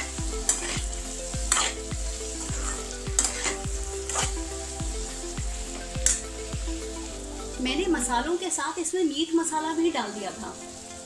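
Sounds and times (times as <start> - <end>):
vegetables sizzling in oil: 0.0 - 11.0
metal spatula scraping pan: 0.5 - 0.9, 1.5 - 1.8, 2.4 - 4.4.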